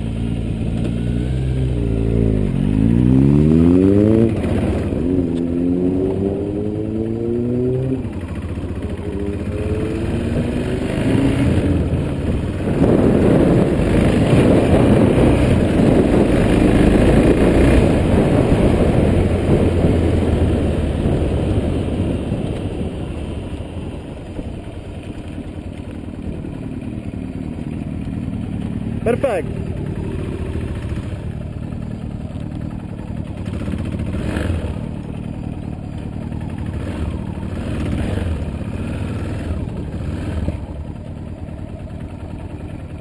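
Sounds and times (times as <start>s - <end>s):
motorcycle engine accelerating: 0.0s - 43.0s
wind rush over microphone: 12.2s - 23.6s.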